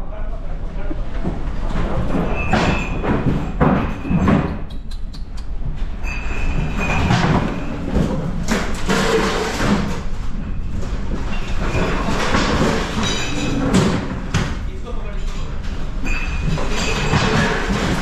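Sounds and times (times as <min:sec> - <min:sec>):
clattering knocks: 0:00.9 - 0:04.6, 0:15.6 - 0:18.0.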